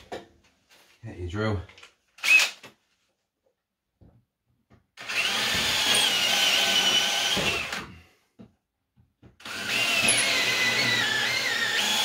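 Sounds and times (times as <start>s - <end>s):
power drill boring: 2.2s - 2.6s, 5.0s - 8.0s, 9.4s - 12.0s.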